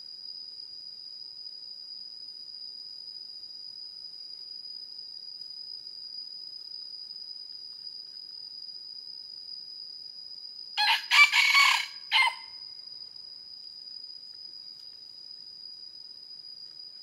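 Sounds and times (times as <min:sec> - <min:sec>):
high-pitched insect drone: 0:05.8 - 0:14.1
rooster crowing: 0:10.8 - 0:12.6.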